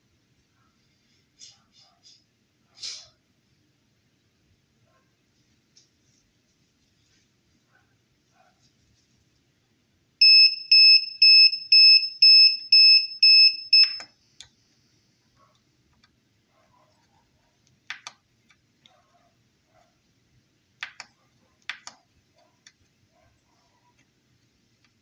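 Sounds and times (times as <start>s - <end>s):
high electronic buzzer beeps: 10.2s - 14.1s.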